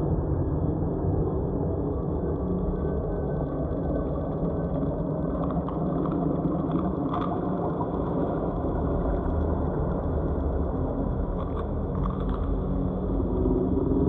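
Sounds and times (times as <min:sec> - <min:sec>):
low rumbling synth drone: 0:07.8 - 0:14.0.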